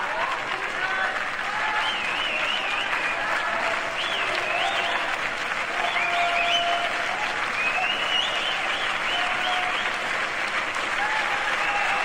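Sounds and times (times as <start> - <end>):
audience cheering and shouting: 0.0 - 10.1, 10.9 - 12.0
audience clapping: 0.0 - 12.0
whistles from audience: 1.7 - 5.1, 5.8 - 6.9, 7.5 - 10.0, 11.4 - 12.0.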